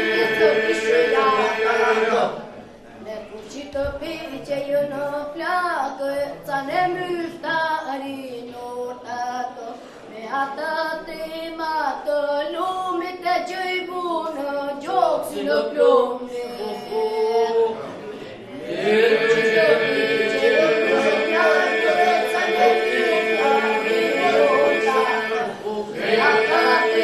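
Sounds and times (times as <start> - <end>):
children singing together: 0.0 - 2.5, 18.6 - 27.0.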